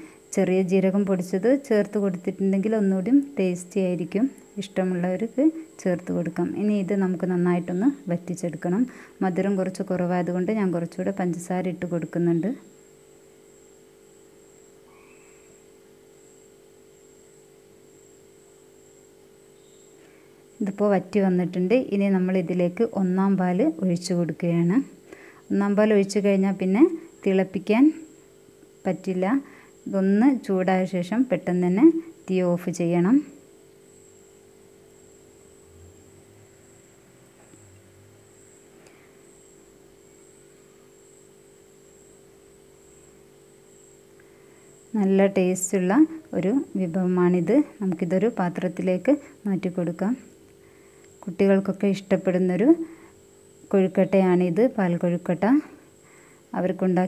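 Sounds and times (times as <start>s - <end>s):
faint steady hum: 0.0s - 57.0s
high-pitched whine: 18.8s - 20.9s, 32.7s - 50.4s.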